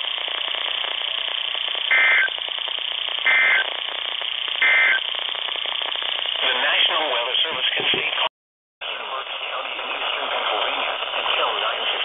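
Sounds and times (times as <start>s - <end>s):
screechy data bursts: 0.2s - 7.0s
radio hiss: 1.9s - 2.4s, 3.2s - 4.0s, 4.6s - 12.0s.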